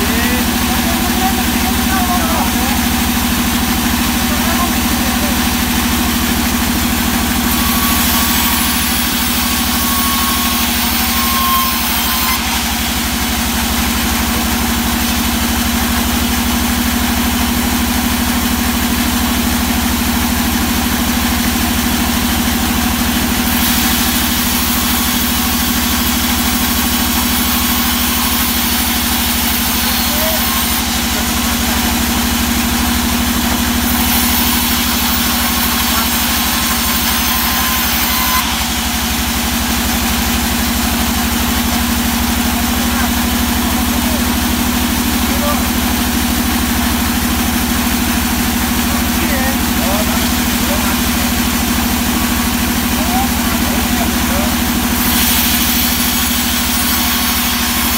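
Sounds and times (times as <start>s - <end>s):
band saw hum: 0.0s - 57.9s
saw blade hissing in wood: 4.5s - 14.4s, 23.3s - 39.0s.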